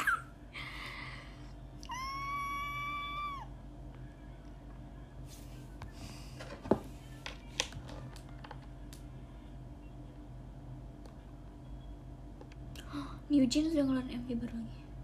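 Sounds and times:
high-pitched cry: 0:01.8 - 0:03.5.

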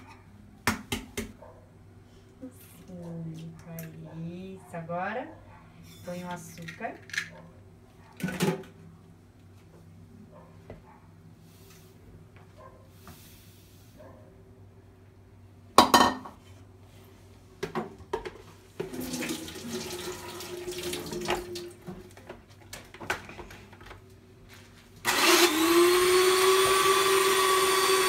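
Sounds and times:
kitchen bowls knocking: 0:15.8 - 0:16.4
electric hand mixer whirring: 0:25.0 - 0:28.0.

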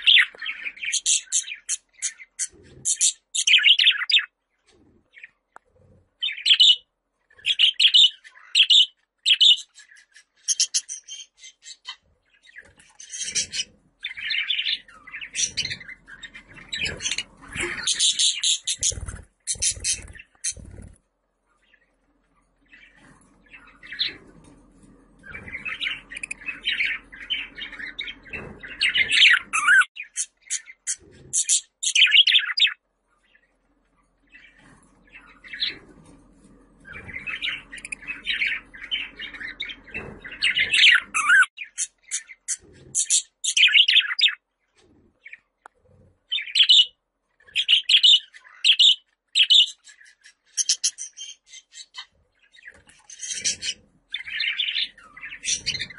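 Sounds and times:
budgerigar warbling and chirping: 0:00.0 - 0:04.3, 0:07.4 - 0:12.0, 0:13.0 - 0:20.9, 0:25.3 - 0:32.8, 0:36.9 - 0:44.4, 0:47.6 - 0:55.9.

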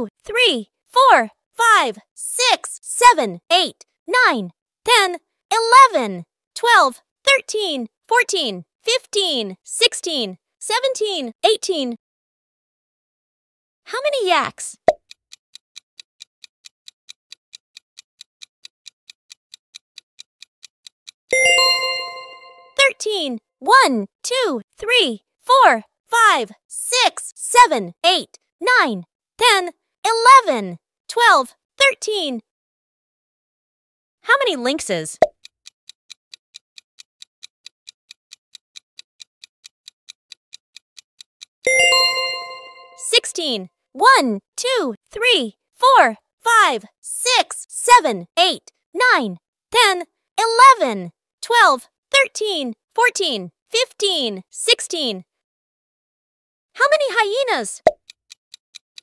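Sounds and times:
countdown timer ticking: 0:21.3 - 0:25.1, 0:41.4 - 0:49.2
ringing chime: 0:21.4 - 0:22.7, 0:41.7 - 0:43.0
quick clock ticking: 0:35.2 - 0:41.9.

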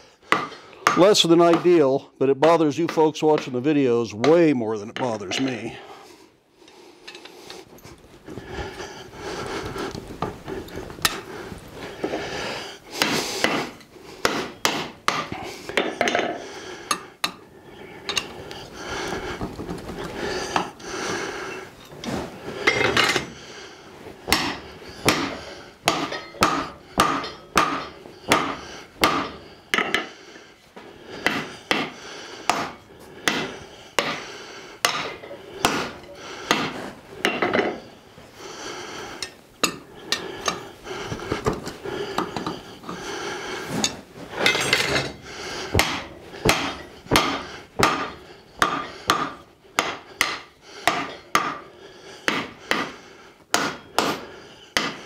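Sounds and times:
hammer striking hot steel: 0:00.3 - 0:01.8, 0:13.0 - 0:17.4, 0:24.3 - 0:30.1, 0:31.2 - 0:34.2, 0:34.8 - 0:37.8, 0:39.2 - 0:39.8, 0:45.8 - 0:51.6, 0:52.3 - 0:54.2, 0:54.8 - 0:55.0
steady background hum: 0:04.7 - 0:55.0.

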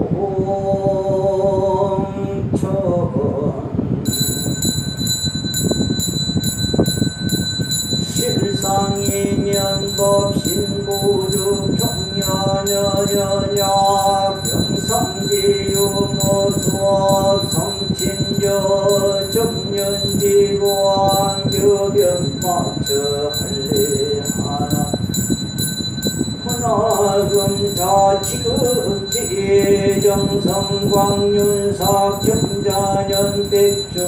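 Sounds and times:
hand bell ringing: 0:04.0 - 0:34.0
person singing long held notes: 0:08.0 - 0:25.3, 0:26.4 - 0:34.0
chanting: 0:08.0 - 0:34.0.

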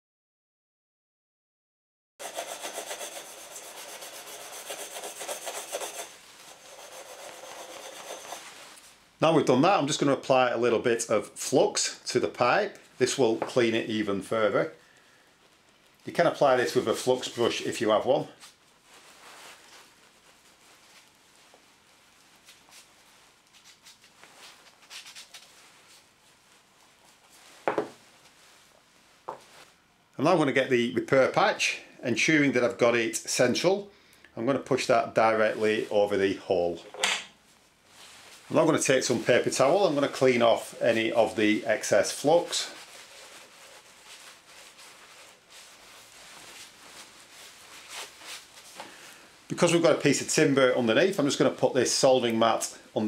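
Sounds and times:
fingertip rubbing copper pipe: 0:02.2 - 0:08.6
paper towel rubbing on pipe: 0:02.2 - 0:08.8, 0:16.4 - 0:29.7, 0:37.9 - 0:48.8.

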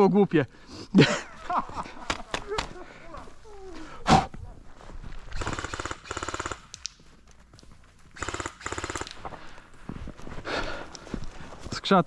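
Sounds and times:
airsoft gun automatic bursts: 0:05.3 - 0:06.8, 0:08.1 - 0:09.2.

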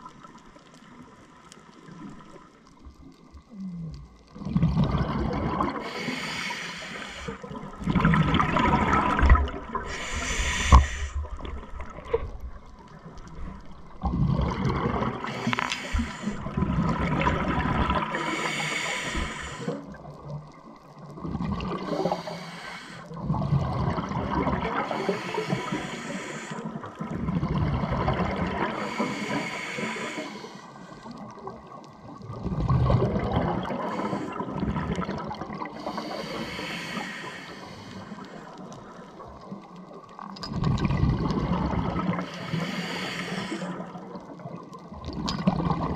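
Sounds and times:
exhaled bubbles gushing: 0:02.1 - 0:22.4, 0:23.1 - 0:30.1, 0:31.2 - 0:37.0, 0:38.6 - 0:45.9
regulator air hiss: 0:05.8 - 0:07.5, 0:09.9 - 0:11.3, 0:15.2 - 0:16.4, 0:18.1 - 0:19.8, 0:21.9 - 0:23.1, 0:24.8 - 0:26.7, 0:28.8 - 0:31.1, 0:35.8 - 0:38.6, 0:42.2 - 0:43.8.

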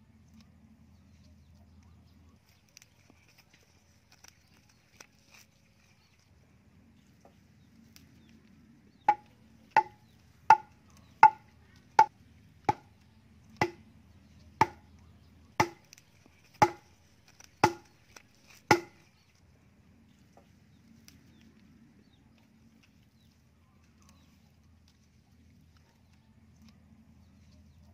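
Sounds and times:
wood pounding post with ringing knocks: 0:09.1 - 0:11.4, 0:13.6 - 0:13.8, 0:14.6 - 0:14.8, 0:15.6 - 0:15.8, 0:16.6 - 0:16.9, 0:17.6 - 0:17.9, 0:18.7 - 0:19.0.

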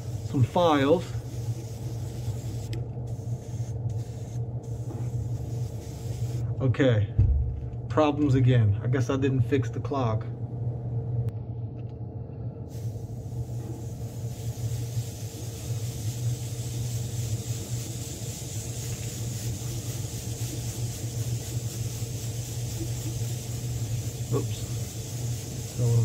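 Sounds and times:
airbrush spraying hiss: 0:00.0 - 0:06.5, 0:12.7 - 0:26.0.

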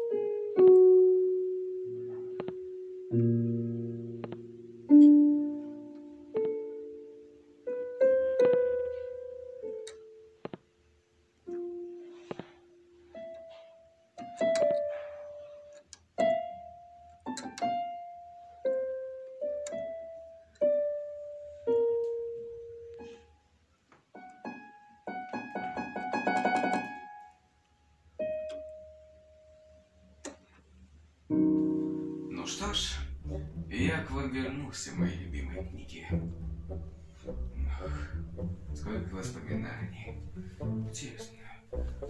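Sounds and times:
slow piano melody: 0:00.0 - 0:42.0.

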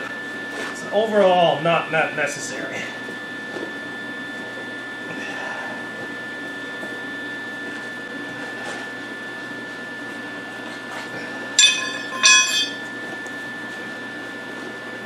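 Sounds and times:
steady shop hum: 0:11.1 - 0:13.5.

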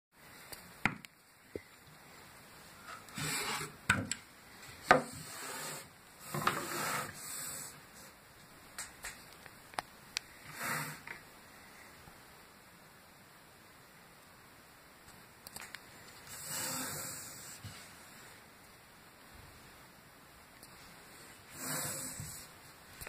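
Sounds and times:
wood scraping on wood: 0:02.8 - 0:04.0, 0:04.7 - 0:08.2, 0:10.4 - 0:11.2, 0:16.1 - 0:18.1, 0:21.4 - 0:22.6.

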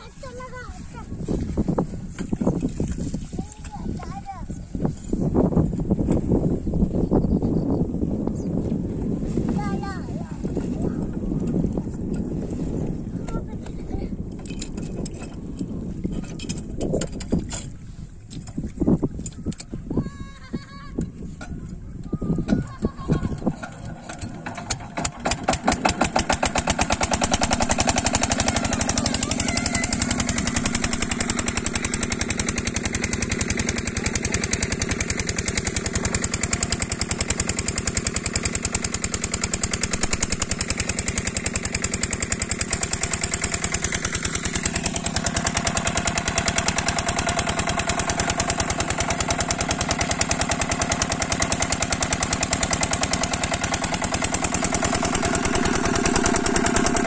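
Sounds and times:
diesel engine thudding: 0:22.4 - 0:57.0.

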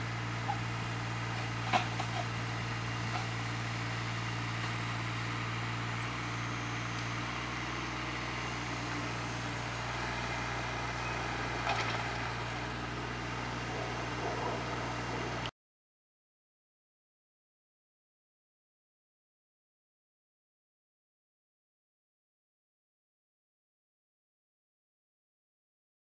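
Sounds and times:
excavator diesel engine running: 0:00.0 - 0:15.5.

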